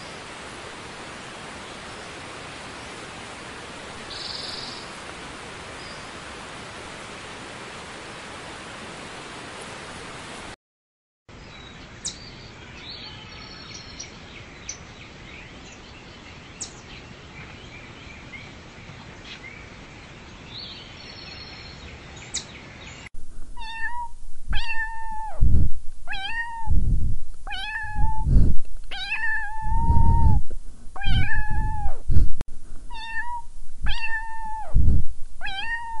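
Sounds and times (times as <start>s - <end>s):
faint hiss: 0.0s - 10.5s
kitten meowing: 23.6s - 25.4s, 26.1s - 26.8s, 27.4s - 28.3s, 28.9s - 30.4s, 31.0s - 32.0s, 32.9s - 34.8s, 35.4s - 36.0s.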